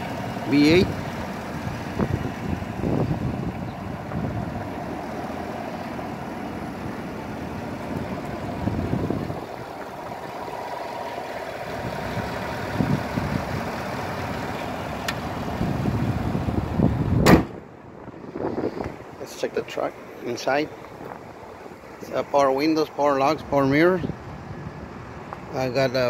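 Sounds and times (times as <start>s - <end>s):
wind buffeting microphone: 0.7s - 5.1s, 7.8s - 10.3s, 11.8s - 14.5s, 15.3s - 19.2s
truck hood slamming shut: 17.2s - 17.6s.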